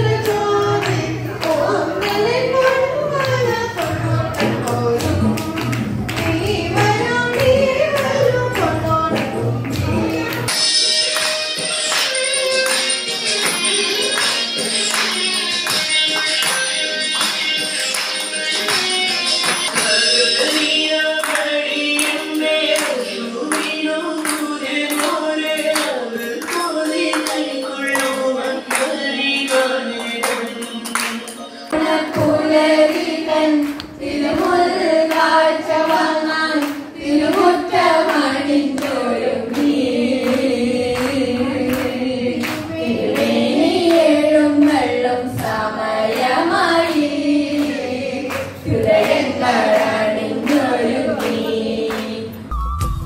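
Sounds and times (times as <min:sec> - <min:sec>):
young women singing together: 0:00.0 - 0:10.6, 0:19.7 - 0:52.5
song with singing: 0:00.0 - 0:53.0.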